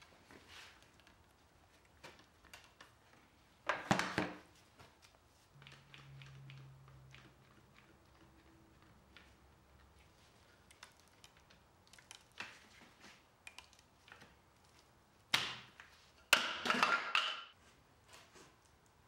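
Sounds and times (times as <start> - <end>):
table top clattering and scraping: 16.4 - 17.5.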